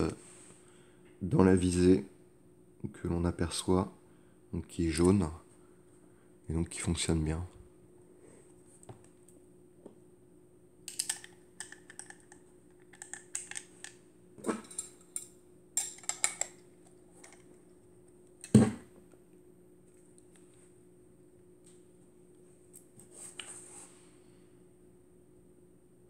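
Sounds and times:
camera handling clicks and rattles: 0:10.9 - 0:13.7.

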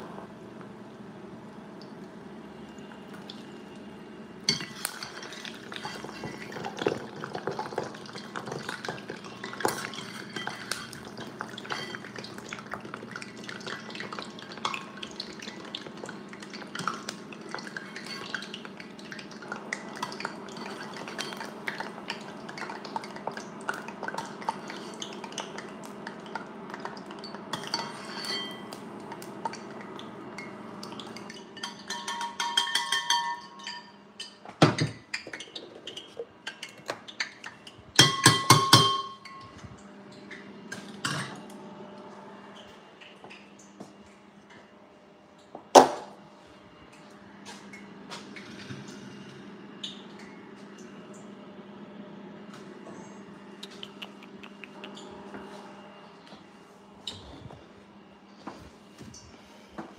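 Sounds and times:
oil crackling sizzle: 0:04.7 - 0:31.5.

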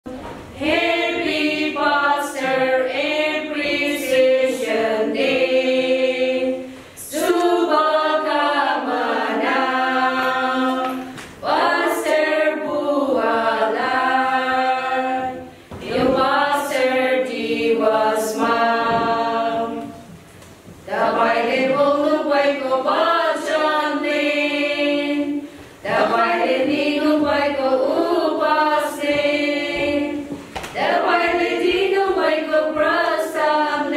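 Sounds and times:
women's choir singing a hymn: 0:00.1 - 0:33.9.

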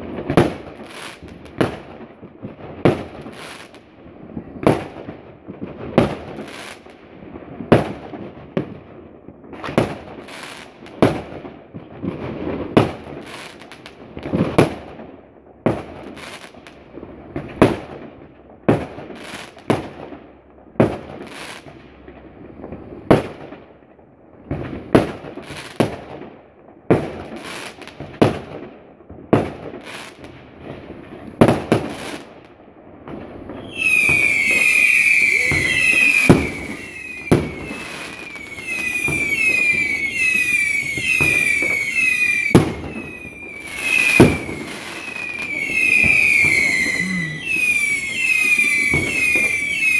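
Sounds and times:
fireworks crackling: 0:00.0 - 0:49.9
fireworks banging: 0:29.3 - 0:49.9
shrill wavering whistle: 0:33.6 - 0:49.9.

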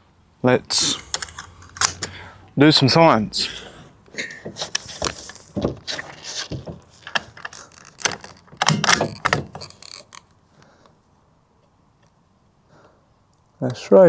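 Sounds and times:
rifle bolt clicks and knocks: 0:06.6 - 0:10.2.

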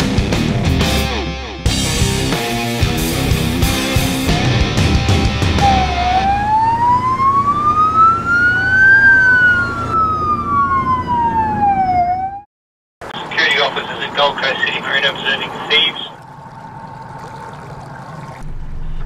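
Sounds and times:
rock music: 0:00.0 - 0:06.3
siren wailing: 0:05.6 - 0:12.5.

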